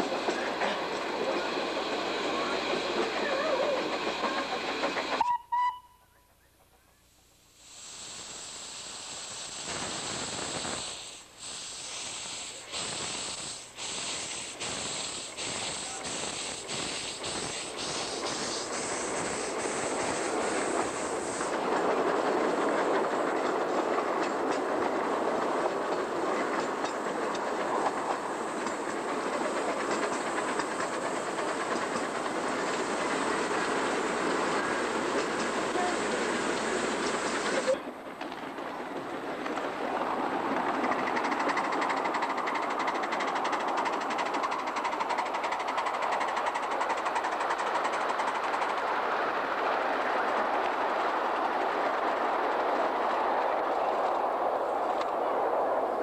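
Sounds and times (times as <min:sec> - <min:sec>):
steam hiss: 0:00.0 - 0:05.2, 0:07.5 - 0:38.0, 0:39.3 - 0:55.0
steam whistle toot: 0:05.2 - 0:06.3
locomotive exhaust chuffs: 0:08.1 - 0:21.6.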